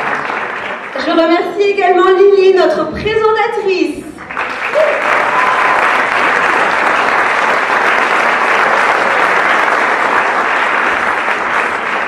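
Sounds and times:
audience applause: 0.0 - 1.2, 4.2 - 12.0.

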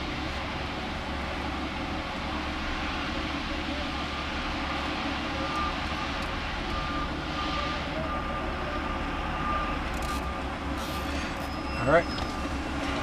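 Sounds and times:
rumbling mechanical noise: 0.0 - 13.0
faint high beep: 5.4 - 6.1, 6.7 - 12.5.

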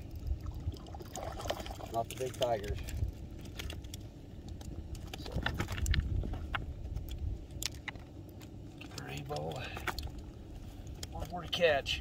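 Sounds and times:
fishing gear clicks and rattles: 1.4 - 12.0
low rumble: 2.6 - 11.4.

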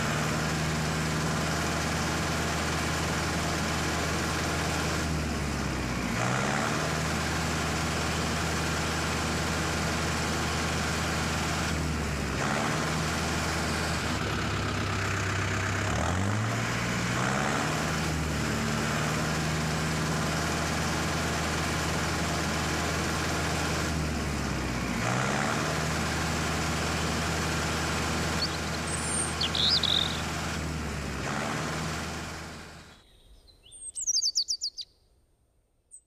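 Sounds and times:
diesel tractor engine idling: 0.0 - 33.0
bird chirping: 28.4 - 30.3, 32.9 - 35.1.

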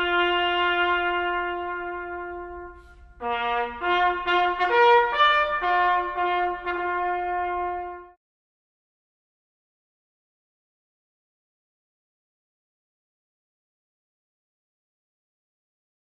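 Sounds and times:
solo bugle call: 0.0 - 8.2.

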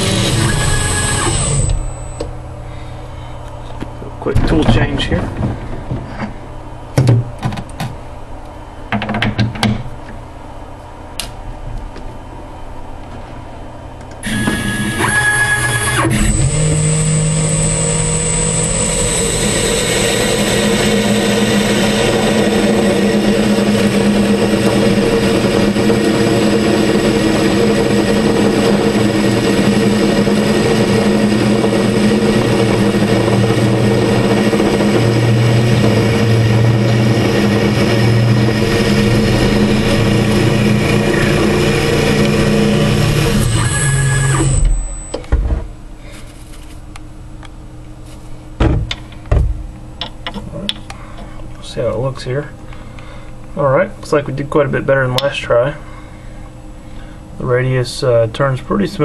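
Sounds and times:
lathe motor humming: 0.0 - 2.3, 14.2 - 45.1
high cutting whine: 0.0 - 5.2, 14.2 - 45.3.

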